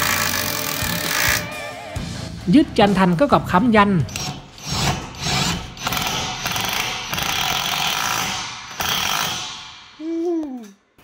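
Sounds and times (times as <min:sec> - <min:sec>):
impact driver driving a screw: 0:00.0 - 0:01.5, 0:04.1 - 0:09.7.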